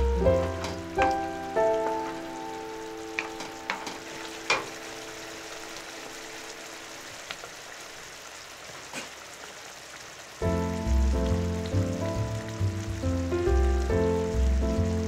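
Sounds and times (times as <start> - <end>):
background music: 0.0 - 5.8, 10.4 - 15.0
curry sizzling in frying pan: 0.0 - 15.0
wooden spatula knocking pan: 0.3 - 2.2, 3.1 - 4.8.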